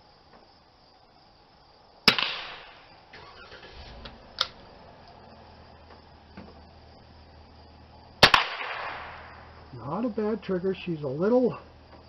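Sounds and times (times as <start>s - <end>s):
rifle shot with echo: 2.1s - 3.0s, 8.2s - 9.4s
quieter sharp crack: 2.1s - 3.4s, 8.2s - 9.6s.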